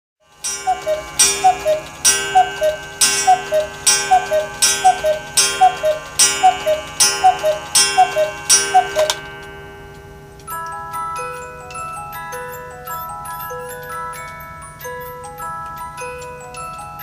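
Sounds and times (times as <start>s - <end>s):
cuckoo clock call: 0.2s - 17.0s
music box tune: 0.2s - 17.0s
clock ringing strike: 0.3s - 11.6s.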